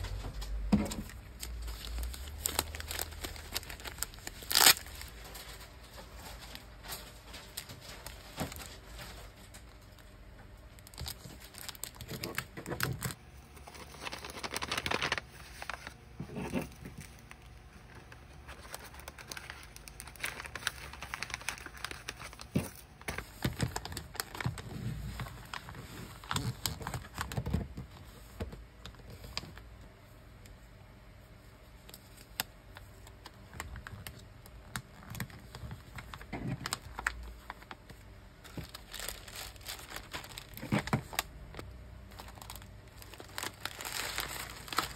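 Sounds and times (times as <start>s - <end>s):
plastic crinkling and rustling: 0.0s - 30.2s, 31.3s - 44.9s.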